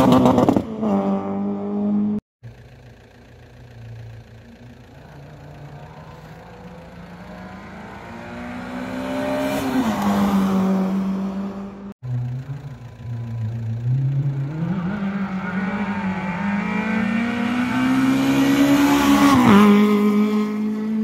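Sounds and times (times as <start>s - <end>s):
rally car engine in distance: 0.0s - 21.0s
rally car passing at full throttle: 4.6s - 21.0s.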